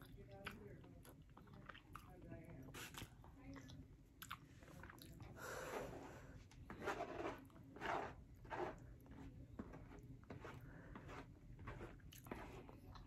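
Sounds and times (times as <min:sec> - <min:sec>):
soft chewing: 0:00.0 - 0:13.0
plastic fork scraping paper plate: 0:05.6 - 0:12.8.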